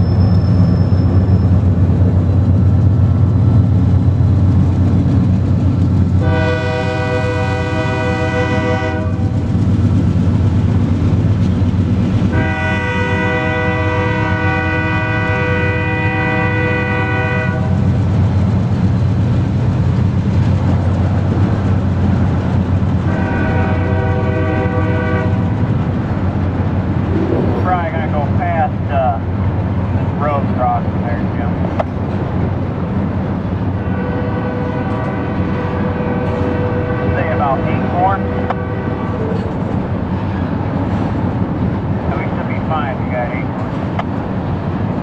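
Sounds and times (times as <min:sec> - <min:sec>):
locomotive air horn blasts: 0:06.2 - 0:09.3, 0:12.3 - 0:17.8, 0:23.1 - 0:25.5, 0:33.8 - 0:39.2.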